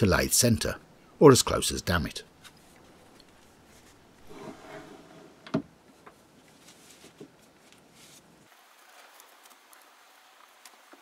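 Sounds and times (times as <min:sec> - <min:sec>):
short rustle: 0:06.4 - 0:08.4.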